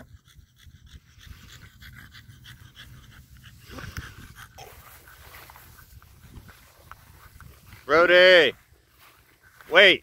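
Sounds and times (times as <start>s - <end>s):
small dog panting: 0.0s - 7.9s.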